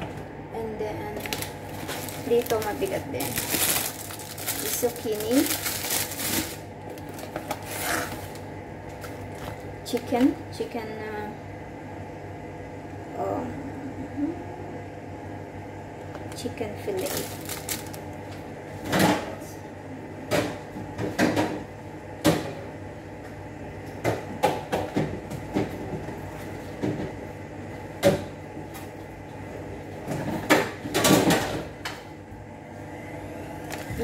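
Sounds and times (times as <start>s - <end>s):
steady low hum: 0.0s - 34.0s
groceries knocking and bumping: 1.1s - 10.4s.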